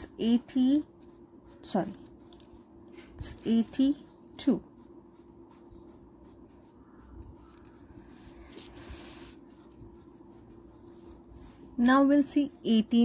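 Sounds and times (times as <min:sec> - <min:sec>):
low steady hum: 0:00.0 - 0:13.0
soft rubbing on paper: 0:04.0 - 0:11.8.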